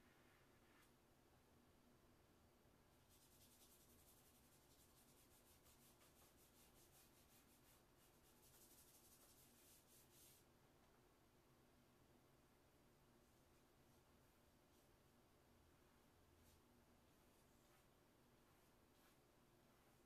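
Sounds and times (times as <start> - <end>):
chalk scratching on paper: 3.0 - 10.5.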